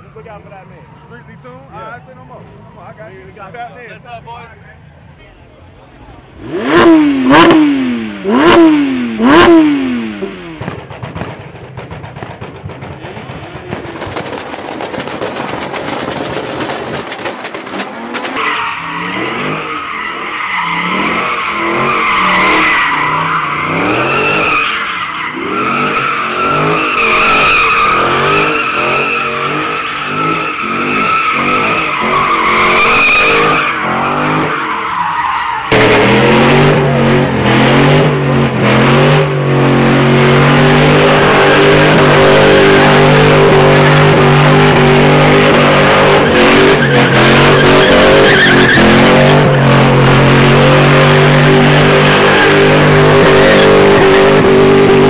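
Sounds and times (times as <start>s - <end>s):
car engine revving: 5.8s - 55.0s
tyre screech: 13.7s - 36.4s, 41.2s - 54.3s.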